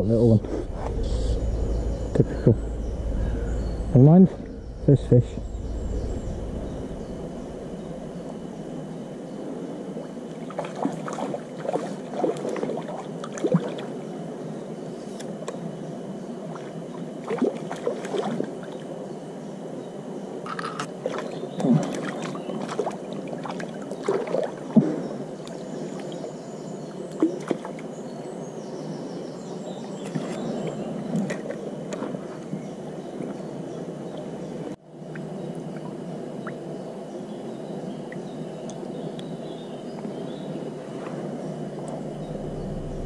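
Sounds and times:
stream water sloshing and splashing: 9.8 - 14.2, 16.3 - 19.0, 20.5 - 26.4, 27.0 - 27.9, 29.9 - 34.3.

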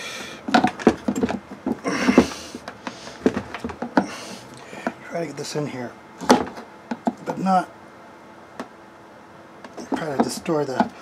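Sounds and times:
hard plastic knocks and clicks: 0.5 - 1.8.

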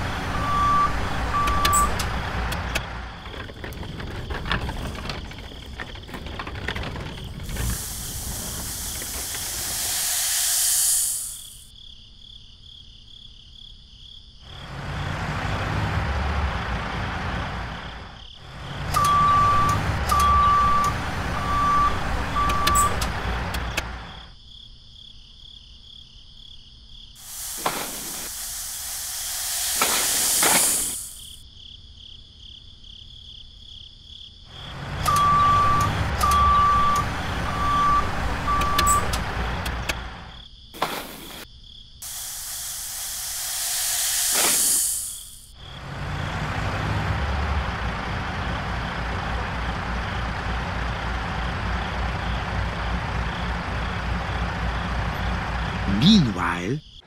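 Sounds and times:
truck engine rumble: 0.0 - 11.7, 14.4 - 24.3, 27.2 - 31.4, 34.5 - 57.0
reversing beeps: 0.3 - 2.1, 18.9 - 23.1, 35.0 - 39.2
insect chirping: 6.9 - 15.0, 17.7 - 19.7, 23.6 - 39.2, 40.0 - 46.4, 51.0 - 57.0
rushing hiss of tipped sand: 7.6 - 11.6, 27.2 - 31.3, 40.8 - 45.5.

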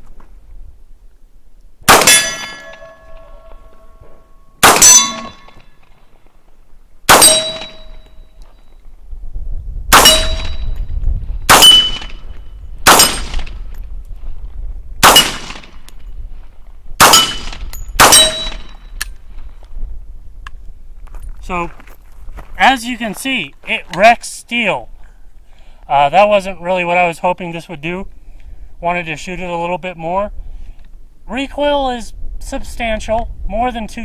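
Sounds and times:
gunshots: 1.9 - 3.4, 4.6 - 5.6, 7.1 - 7.8, 9.9 - 10.6, 11.5 - 12.2, 12.8 - 13.6, 15.0 - 15.8, 17.0 - 18.8
bullet clanging on steel target: 2.0 - 5.7, 7.1 - 8.2, 10.0 - 10.9, 11.5 - 12.2, 17.1 - 19.1.

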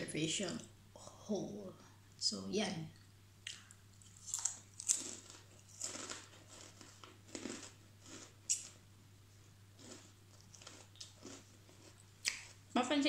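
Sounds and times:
person chewing a cracker: 3.4 - 8.8, 9.8 - 12.6.

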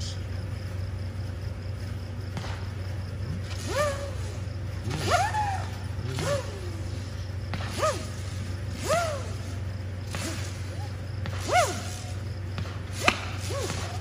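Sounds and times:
steady low hum: 0.0 - 14.0
whistling fireworks: 1.1 - 14.0.

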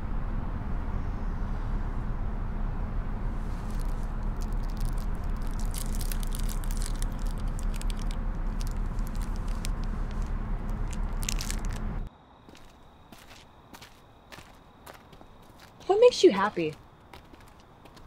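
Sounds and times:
car idling cabin rumble: 0.0 - 12.1
light clicks and crackles: 3.6 - 12.1.

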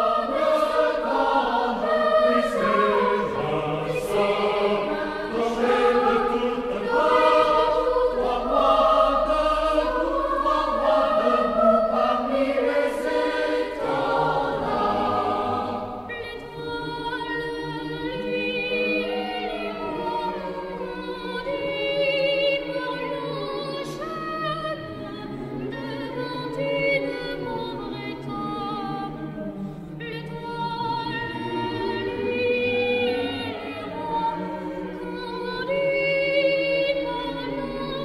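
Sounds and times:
boys' choir singing a carol: 0.0 - 38.0.

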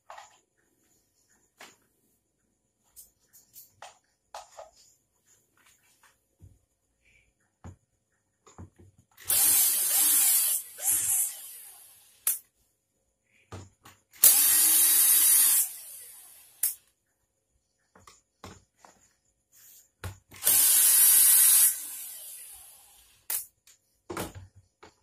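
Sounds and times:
power tool rushing hiss: 9.2 - 12.4, 14.2 - 16.8, 20.4 - 23.4.

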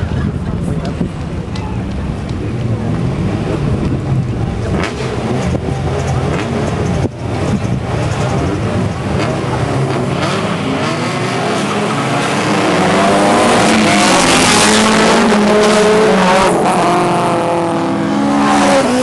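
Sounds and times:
low exhaust note: 0.0 - 10.0
sports car engines idling and revving: 0.0 - 19.0.

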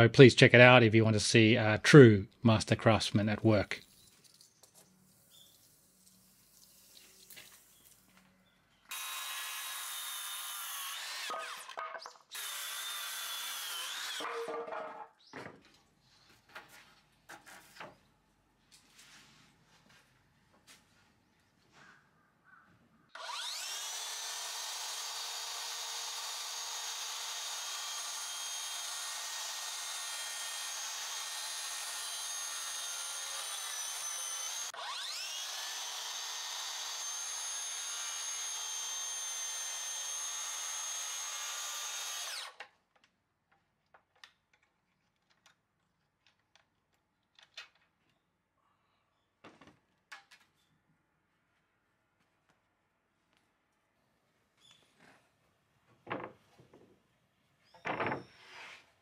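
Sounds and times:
circular saw cutting wood: 8.9 - 15.1, 23.2 - 42.7.

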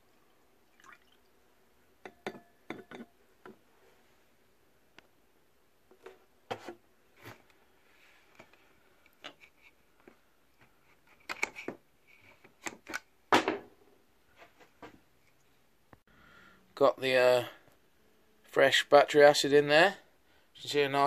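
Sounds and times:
objects being handled and set down: 5.9 - 15.1.

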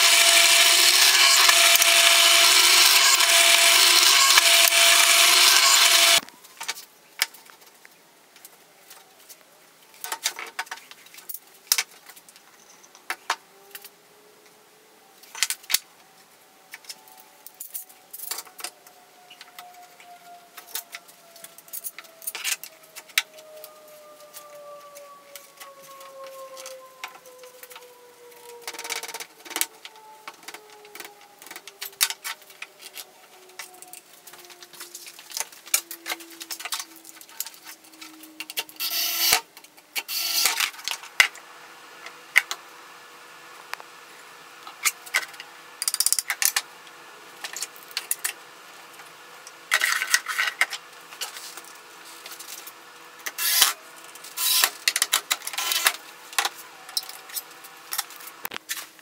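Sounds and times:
electric drill driving screws: 0.0 - 6.2, 38.8 - 39.4, 40.0 - 40.6, 53.2 - 56.0.

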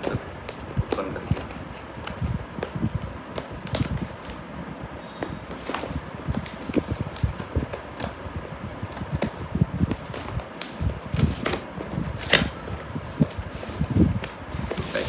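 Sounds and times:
scissors snipping packing tape: 12.2 - 12.6.

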